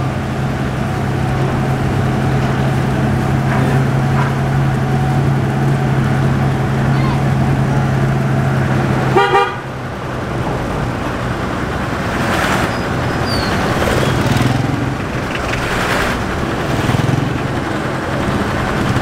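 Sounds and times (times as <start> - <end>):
traffic passing outside: 0.0 - 19.0
vehicle engine and road rumble: 0.0 - 19.0.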